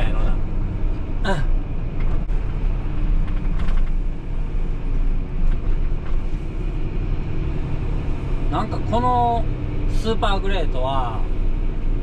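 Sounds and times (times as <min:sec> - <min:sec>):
truck engine and road noise: 0:00.0 - 0:12.0.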